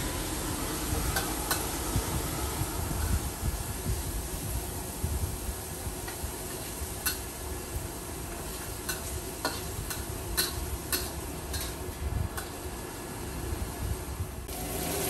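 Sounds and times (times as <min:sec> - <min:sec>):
food sizzling: 0:00.0 - 0:15.0
metal spatula scraping a wok: 0:08.3 - 0:12.7.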